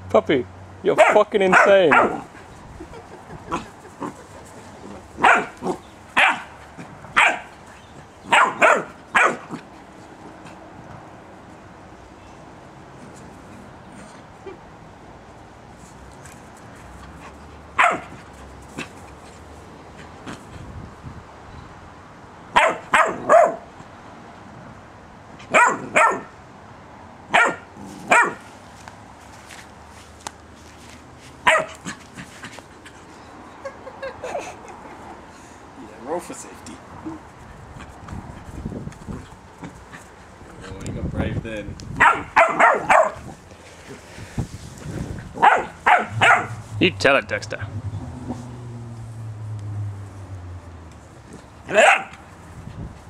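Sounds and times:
puppy barking: 1.0s - 2.3s, 5.2s - 6.6s, 7.2s - 7.5s, 8.3s - 9.6s, 17.8s - 18.2s, 22.5s - 23.6s, 25.5s - 26.3s, 27.3s - 28.4s, 31.4s - 32.0s, 42.0s - 43.3s, 45.4s - 46.7s, 51.7s - 52.2s.

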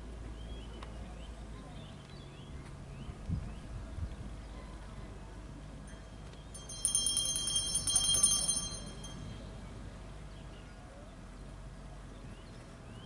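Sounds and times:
small bell ringing rapidly: 5.9s - 9.5s.

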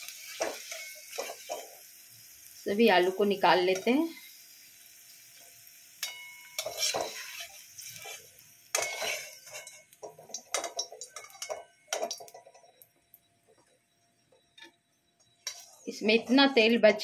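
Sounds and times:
metal skimmer scraping a steel pan: 6.0s - 8.2s, 8.8s - 9.9s.

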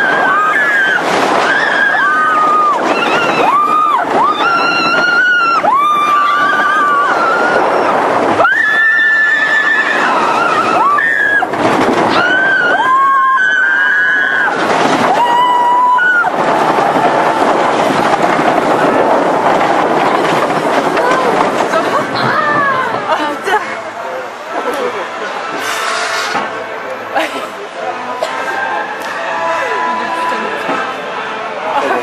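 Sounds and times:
riders screaming and whooping: 0.0s - 23.2s
rush of wind: 0.0s - 26.8s
roller coaster rumbling on track: 0.0s - 32.0s.

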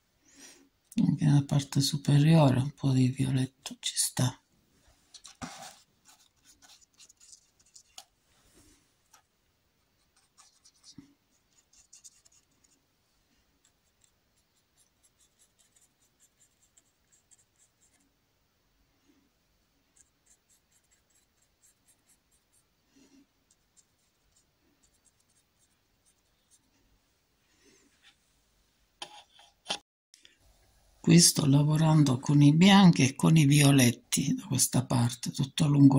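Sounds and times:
paintbrush strokes on canvas: 4.8s - 9.3s, 19.9s - 26.8s.

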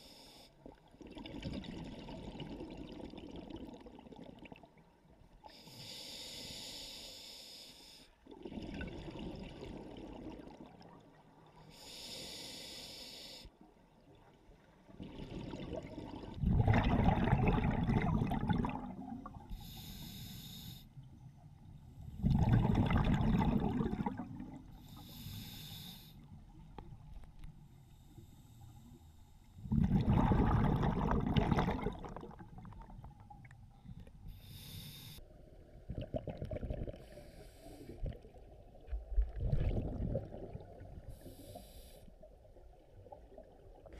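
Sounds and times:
regulator hissing inhales: 5.6s - 8.1s, 11.7s - 13.5s, 19.5s - 20.9s, 24.8s - 26.3s, 34.3s - 35.2s, 37.0s - 38.0s, 41.1s - 42.2s
bubbly exhales underwater: 15.0s - 19.4s, 22.2s - 24.6s, 29.6s - 33.1s, 35.8s - 37.1s, 39.2s - 41.0s.

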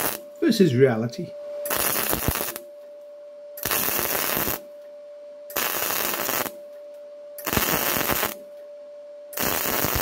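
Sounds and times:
arc welding crackle: 0.0s - 0.5s, 1.6s - 2.7s, 3.6s - 4.7s, 5.5s - 6.6s, 7.4s - 8.5s, 9.3s - 10.0s
steady hum: 0.0s - 10.0s.

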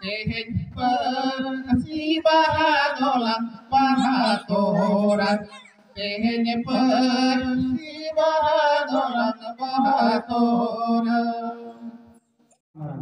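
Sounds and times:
men singing a chant over loudspeakers: 0.0s - 12.0s.

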